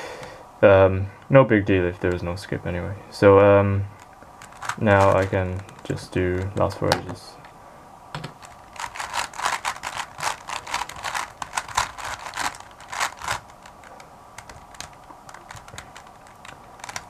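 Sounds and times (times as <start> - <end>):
puzzle cube plastic clicking: 4.0 - 7.2, 8.2 - 17.0.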